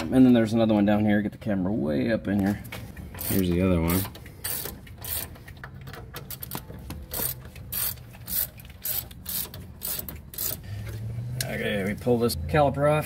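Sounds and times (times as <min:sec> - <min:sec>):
ratchet clicking: 0:03.1 - 0:10.7.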